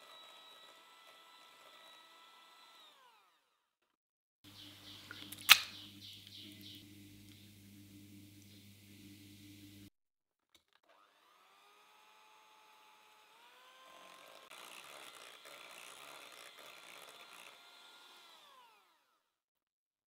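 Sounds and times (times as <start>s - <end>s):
electric hand mixer whine: 0.0s - 3.8s, 10.7s - 19.4s.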